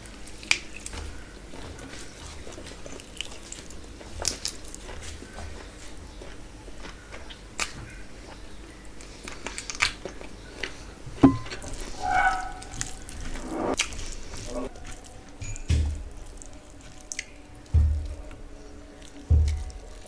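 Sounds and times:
tearing chicken by hand: 0.0s - 5.6s, 13.8s - 20.0s
biting and chewing: 0.0s - 20.0s
short hum-like pitched sound: 11.2s - 13.8s.

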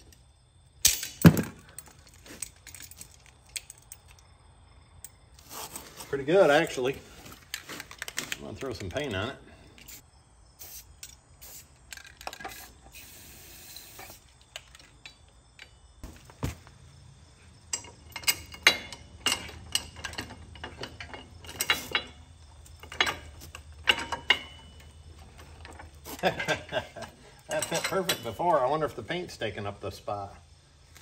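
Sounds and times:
metal tools clinking: 0.8s - 4.3s, 5.0s - 10.0s, 17.7s - 29.1s.

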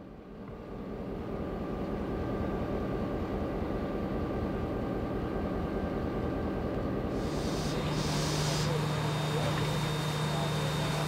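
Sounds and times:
faint steady hum: 7.0s - 11.0s.

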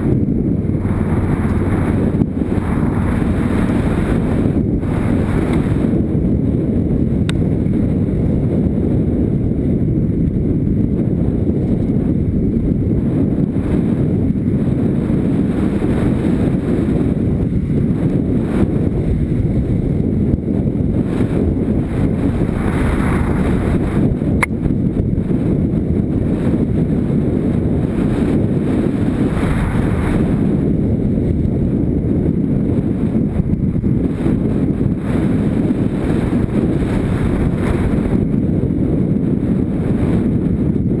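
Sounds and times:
motorcycle engine running: 0.0s - 41.0s
wind rumble on microphone: 0.0s - 41.0s.

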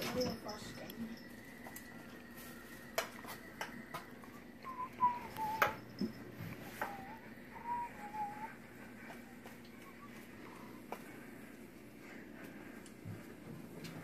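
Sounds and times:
person whistling: 4.3s - 8.7s.

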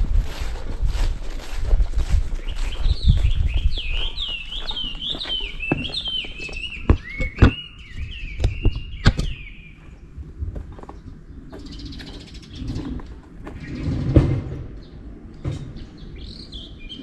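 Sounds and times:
wind rumble on microphone: 0.0s - 17.0s
songbird whistling: 2.4s - 10.0s.

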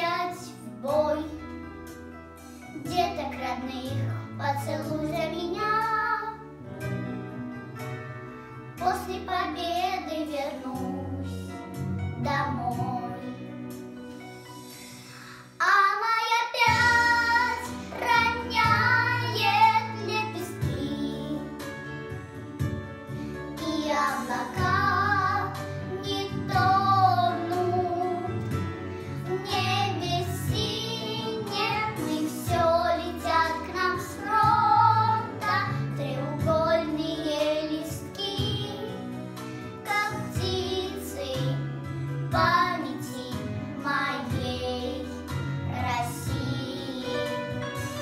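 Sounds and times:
instrumental accompaniment: 5.0s - 15.6s, 16.6s - 48.0s
girls singing together: 23.6s - 28.4s, 29.4s - 38.8s.

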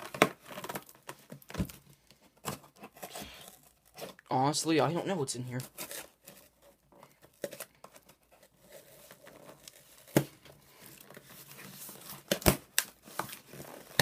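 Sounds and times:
packing tape ripping off cardboard: 0.0s - 1.8s, 5.6s - 14.0s
cardboard crinkling: 0.0s - 14.0s.

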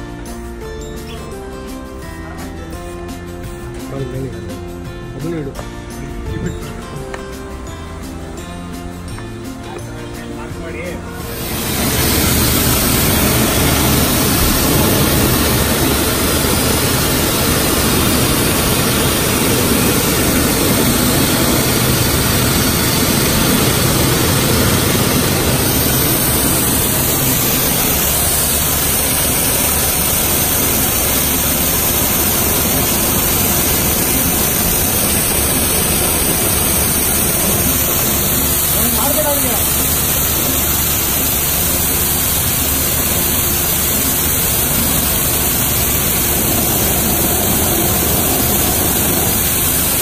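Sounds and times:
pressure washer spraying water: 11.2s - 50.0s.

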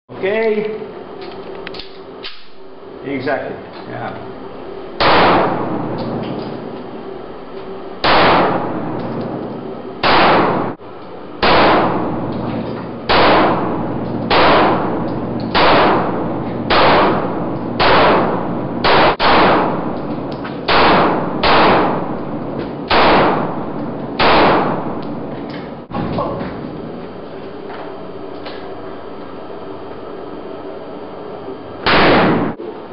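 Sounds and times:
pistol shots echoing indoors: 5.0s - 6.5s, 8.0s - 9.4s, 10.0s - 10.8s, 11.4s - 12.4s, 13.1s - 25.3s, 31.8s - 32.6s.

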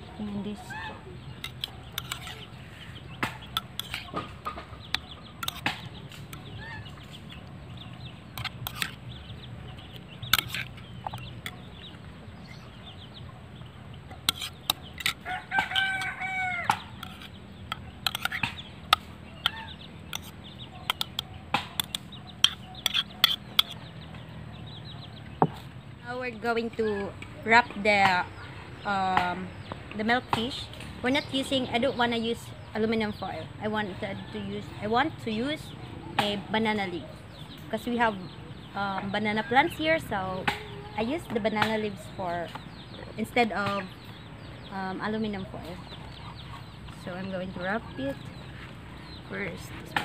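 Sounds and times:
chickens clucking: 0.0s - 50.0s
spoon scraping a bowl: 1.4s - 2.6s, 3.4s - 4.2s, 4.8s - 6.5s, 8.3s - 9.1s, 10.2s - 11.6s, 14.2s - 16.2s, 16.9s - 21.2s, 21.8s - 23.8s
rooster crowing: 15.2s - 16.9s.

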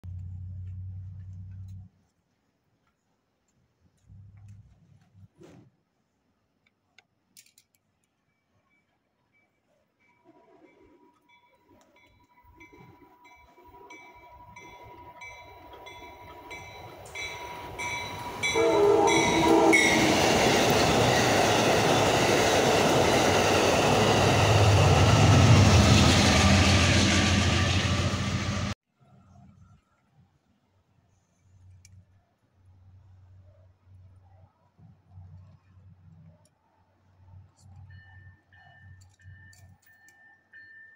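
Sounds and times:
train rumble and rail noise: 0.0s - 1.9s, 10.0s - 28.8s
train horn blast: 18.2s - 20.3s.

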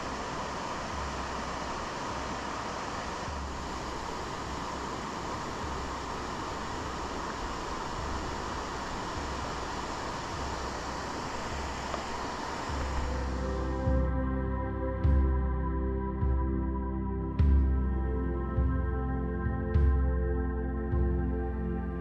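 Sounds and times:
river flowing over stones: 0.0s - 13.4s.

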